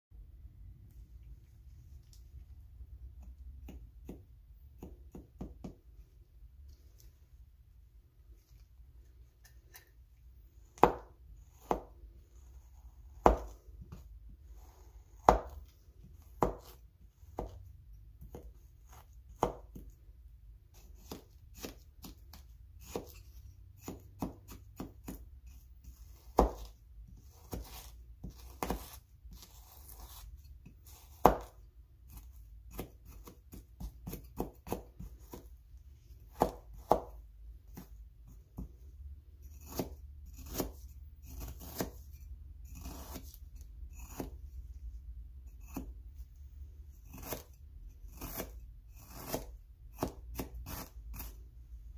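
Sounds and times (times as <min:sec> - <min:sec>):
knife slicing: 0:10.6 - 0:17.6, 0:20.7 - 0:35.6, 0:39.4 - 0:44.5, 0:47.0 - 0:51.4.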